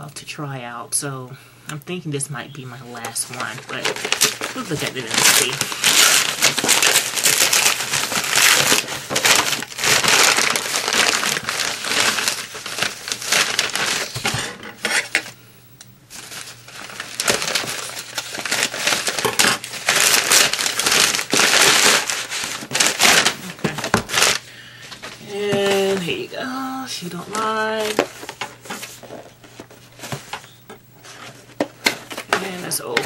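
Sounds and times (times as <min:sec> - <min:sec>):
wrapping crinkling and rustling: 0:02.6 - 0:15.4, 0:16.1 - 0:33.0.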